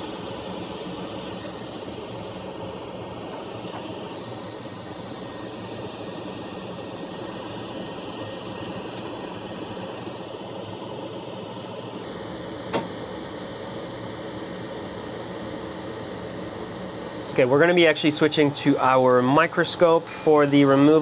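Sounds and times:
extractor fan air rush: 0.0s - 21.0s.

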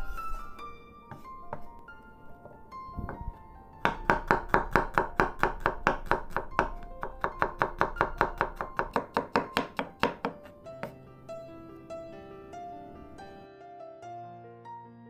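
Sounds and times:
knife chopping on wooden board: 3.8s - 11.0s.

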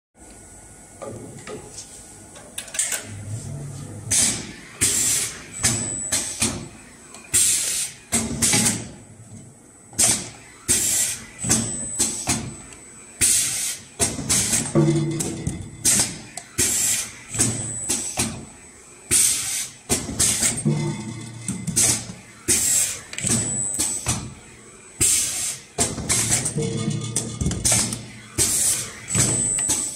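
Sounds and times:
pneumatic air hiss and clatter: 4.1s - 9.0s, 9.9s - 12.5s, 13.2s - 14.7s, 15.8s - 18.4s, 19.1s - 20.6s, 21.7s - 24.3s, 25.0s - 26.6s, 27.6s - 29.9s.

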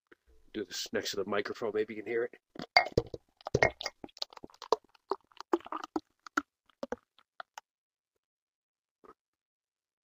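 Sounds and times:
beer foam crackling and fizzing: 3.4s - 7.6s.

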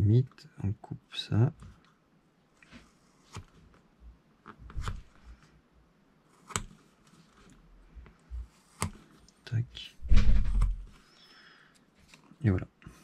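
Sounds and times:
craft knife cutting tubing: 8.5s - 9.1s.

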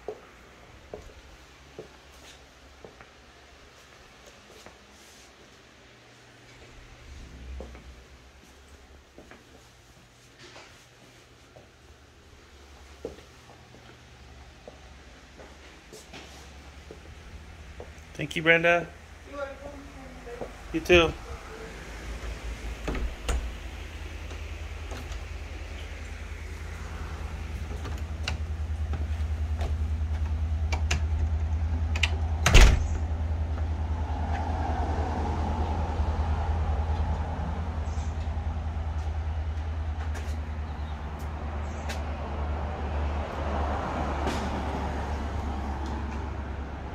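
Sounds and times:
door shutting with a bang: 22.7s - 23.8s, 32.4s - 33.2s.

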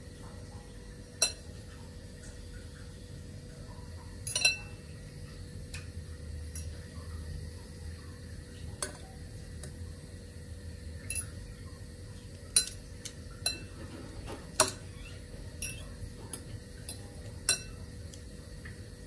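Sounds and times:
low steady hum: 0.0s - 19.0s
fork clinking glass bowl: 4.2s - 4.8s, 11.0s - 11.4s, 12.5s - 12.8s, 13.4s - 13.8s, 15.6s - 15.9s, 16.8s - 17.8s.

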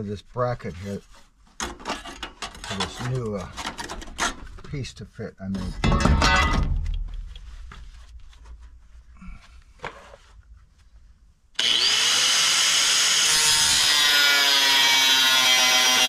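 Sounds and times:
angle grinder cutting metal: 11.6s - 16.0s.

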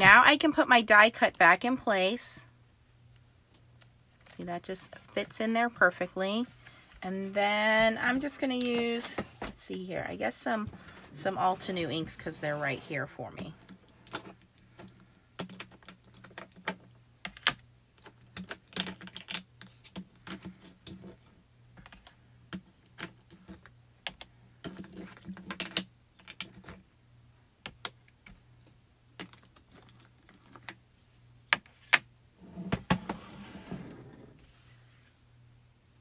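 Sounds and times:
plastic cubes clicking and clattering: 14.0s - 21.1s, 21.8s - 26.8s, 27.6s - 30.8s.

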